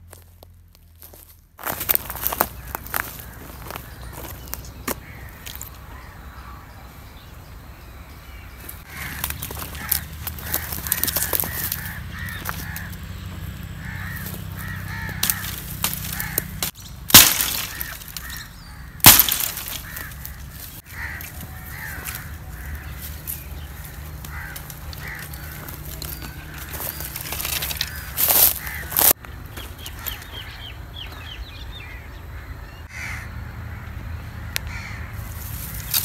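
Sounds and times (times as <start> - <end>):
birds calling: 0.1 - 36.0
wood breaking cracks: 14.6 - 22.8, 24.1 - 29.2.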